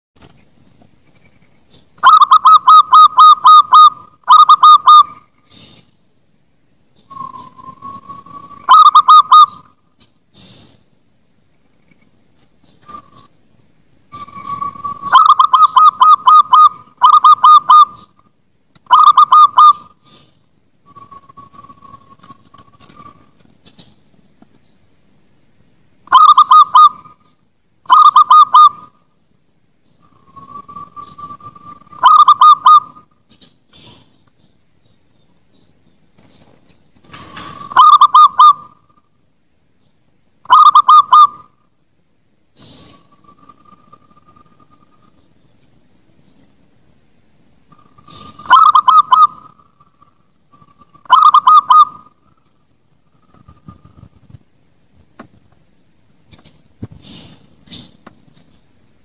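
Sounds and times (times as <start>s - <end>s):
dove cooing: 2.0s - 5.8s, 7.1s - 9.8s, 14.1s - 18.2s, 18.9s - 20.3s, 26.1s - 27.3s, 27.9s - 29.0s, 30.0s - 33.1s, 37.1s - 39.0s, 40.5s - 41.6s, 47.7s - 52.2s
soft hiss: 5.2s - 8.7s, 9.6s - 14.9s.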